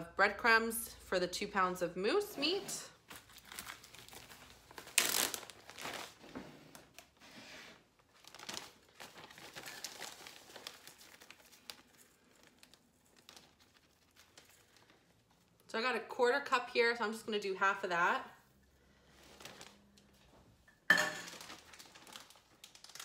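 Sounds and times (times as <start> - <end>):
plastic bag crinkling: 3.0 - 7.2, 8.0 - 15.6, 19.2 - 20.3, 21.2 - 23.0.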